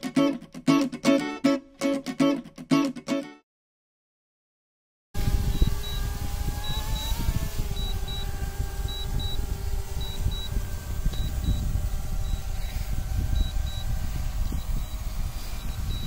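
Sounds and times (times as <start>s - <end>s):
drone propellers humming: 5.2s - 16.0s
wind on microphone: 5.2s - 16.0s
short high beeps: 7.8s - 8.3s, 8.9s - 9.4s, 10.0s - 10.5s, 13.4s - 16.0s.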